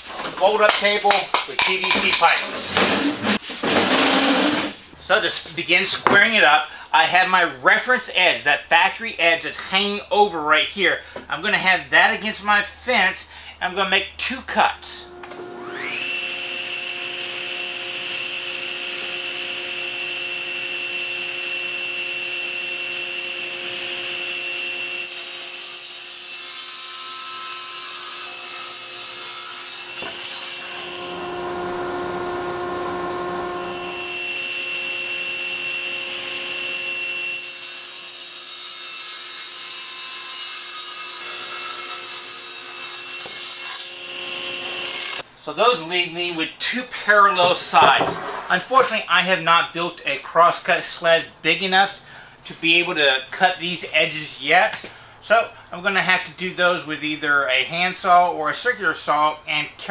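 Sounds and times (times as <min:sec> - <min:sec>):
saw cutting plywood: 0:00.8 - 0:04.8, 0:15.0 - 0:45.2, 0:47.4 - 0:48.6
table saw whining: 0:01.8 - 0:04.9, 0:14.9 - 0:45.8, 0:47.3 - 0:48.9.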